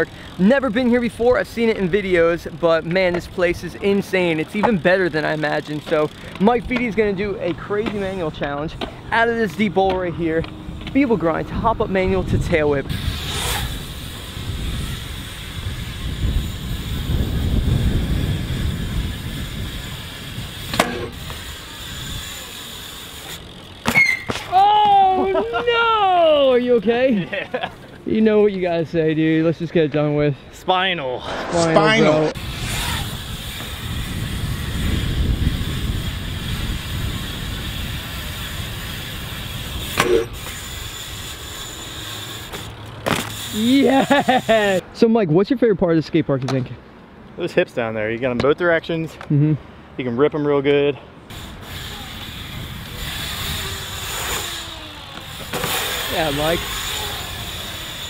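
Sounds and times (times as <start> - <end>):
bike tyres rolling on concrete: 0.0 - 30.1, 32.3 - 44.8, 50.6 - 58.0
wind on microphone: 11.5 - 22.3, 31.2 - 40.6
bike knocking onto concrete ledge: 20.7 - 21.4.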